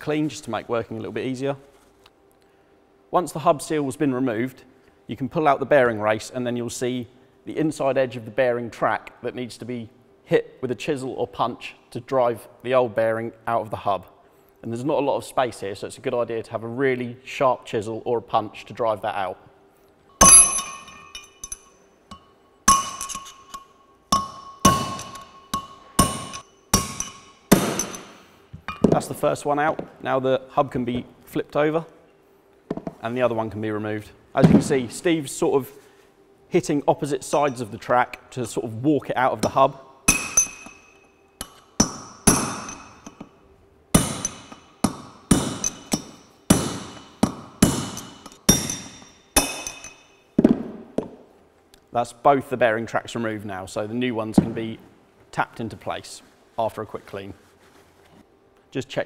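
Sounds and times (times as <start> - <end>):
hammer striking steel punch: 20.2 - 29.1, 39.4 - 43.3, 44.0 - 51.2.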